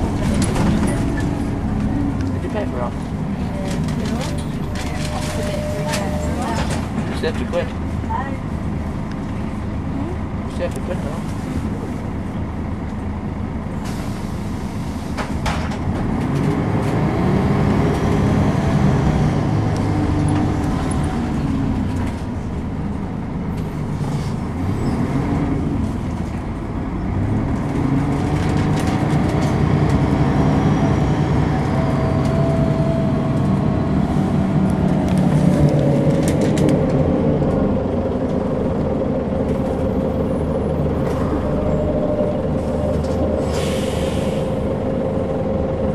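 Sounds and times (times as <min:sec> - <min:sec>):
bus body clicks and rattles: 0:00.0 - 0:07.6, 0:15.1 - 0:17.0, 0:19.8 - 0:24.0, 0:27.5 - 0:30.1, 0:34.6 - 0:41.2
bus diesel engine accelerating: 0:00.0 - 0:45.9.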